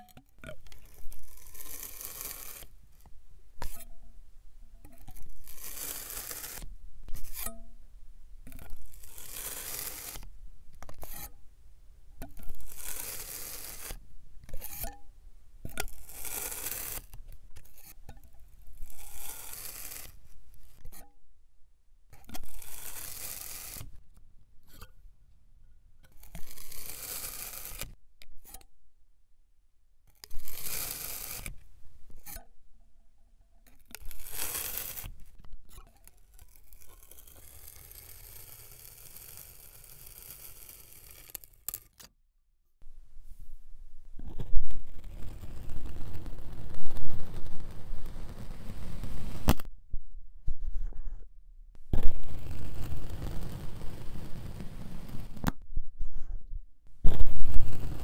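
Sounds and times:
blade slicing through sand: 1.3s - 2.7s, 5.4s - 6.6s, 9.0s - 10.2s, 12.6s - 14.0s, 16.1s - 17.1s, 19.0s - 20.2s, 34.0s - 35.1s.

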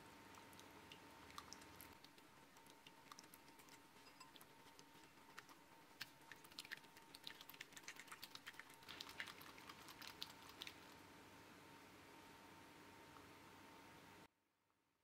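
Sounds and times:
whisk clicking against glass bowl: 3.5s - 4.5s.

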